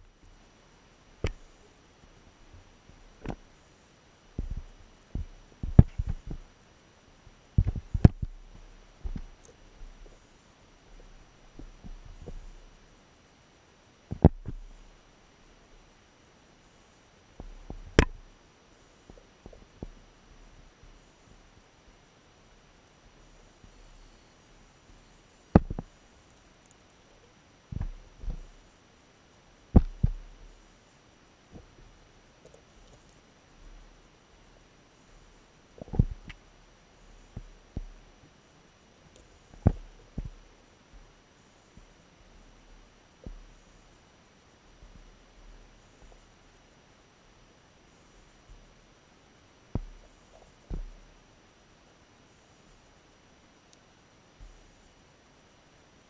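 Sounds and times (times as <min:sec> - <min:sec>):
dull underwater knocks: 0:04.4 - 0:06.4, 0:07.6 - 0:08.4, 0:25.6 - 0:25.9, 0:29.8 - 0:30.2.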